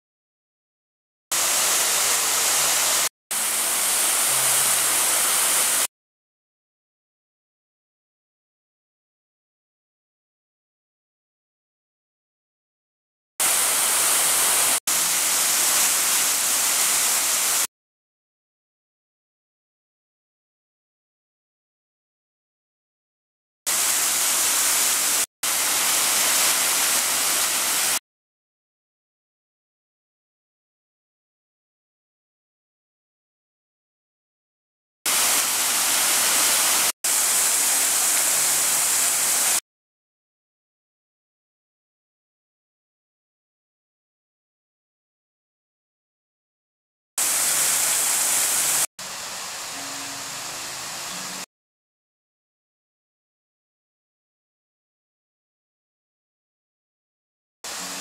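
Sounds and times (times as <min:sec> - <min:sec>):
fountain jets splashing: 0:01.3 - 0:05.9, 0:13.4 - 0:17.7, 0:23.7 - 0:28.0, 0:35.1 - 0:39.6, 0:47.2 - 0:51.4.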